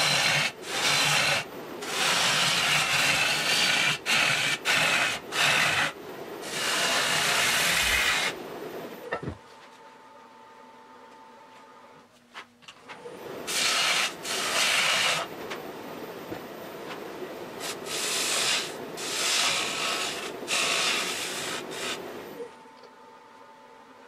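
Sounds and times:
turning tool cutting wood: 0:00.0 - 0:08.4, 0:13.5 - 0:15.3, 0:17.6 - 0:22.4
wood lathe running: 0:00.0 - 0:08.4, 0:13.5 - 0:15.4, 0:17.6 - 0:22.4.

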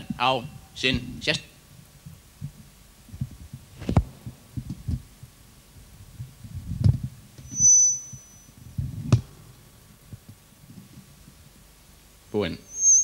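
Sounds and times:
short high whine: 0:07.4 - 0:08.6, 0:12.4 - 0:13.0.

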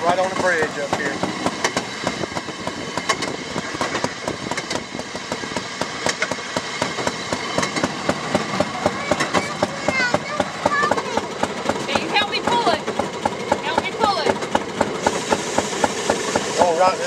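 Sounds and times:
clicking clatter on rails: 0:00.0 - 0:16.6
rail car motor running: 0:00.0 - 0:17.0.

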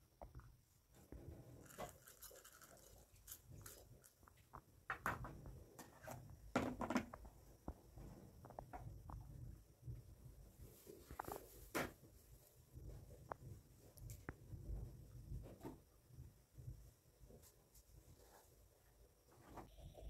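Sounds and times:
plastic containers clicking and rustling: 0:05.9 - 0:07.3.

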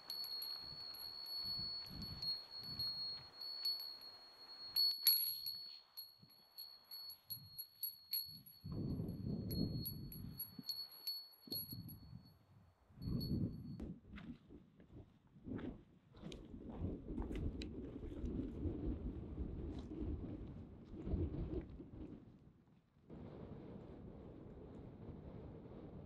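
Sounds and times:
small bell jingling: 0:00.0 - 0:12.4, 0:13.0 - 0:13.8.

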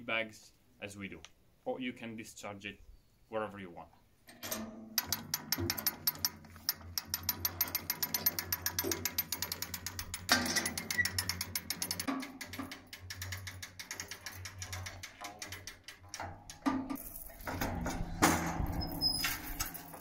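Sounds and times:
ratchet winch pawl clicking: 0:05.0 - 0:17.4.

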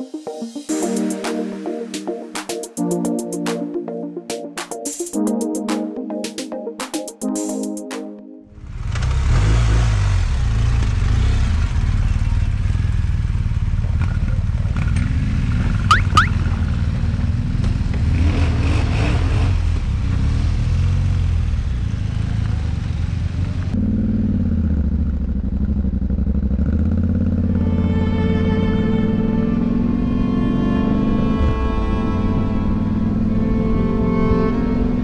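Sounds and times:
motorcycle engine running: 0:08.6 - 0:18.6, 0:19.6 - 0:30.4
high rising chirps: 0:15.9 - 0:16.3.

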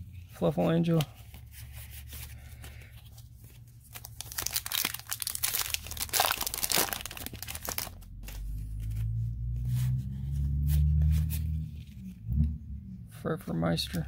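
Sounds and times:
foil wrapper crinkling and tearing: 0:03.8 - 0:08.6.

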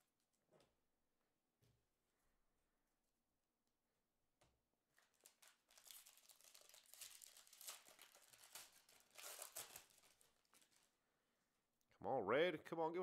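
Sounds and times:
foil pack crinkling and tearing: 0:05.0 - 0:11.0.

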